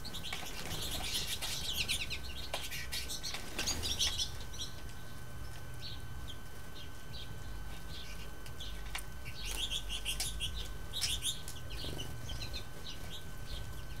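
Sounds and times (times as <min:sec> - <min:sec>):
finches twittering: 0:05.8 - 0:14.0.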